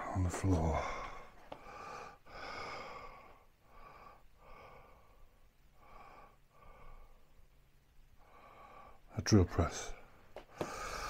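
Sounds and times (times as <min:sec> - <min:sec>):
person breathing close to microphone: 0:00.6 - 0:07.4, 0:10.0 - 0:11.0.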